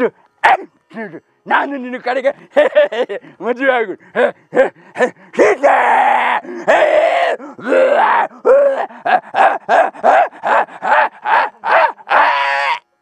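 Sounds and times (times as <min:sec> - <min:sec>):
man growling and roaring: 0:05.0 - 0:12.2.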